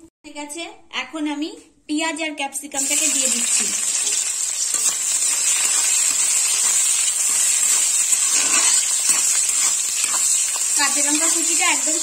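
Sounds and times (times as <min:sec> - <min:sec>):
vegetables sizzling in hot oil: 0:02.8 - 0:12.0.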